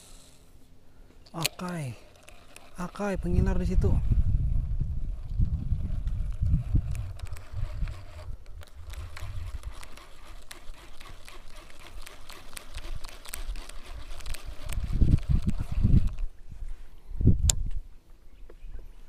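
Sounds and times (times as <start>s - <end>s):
wind and handling rumble: 1.0s - 19.0s
faint clicks and ticks: 1.2s - 3.2s, 6.0s - 16.3s.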